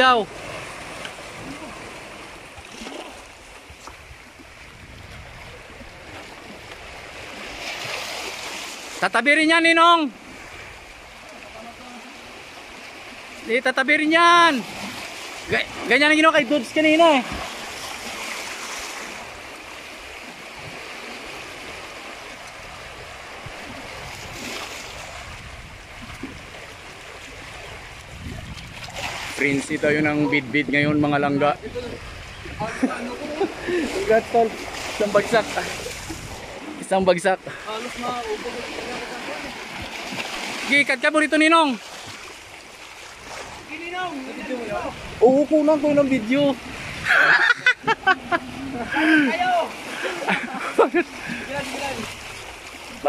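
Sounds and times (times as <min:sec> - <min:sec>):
rushing water: 0:00.0 - 0:53.0.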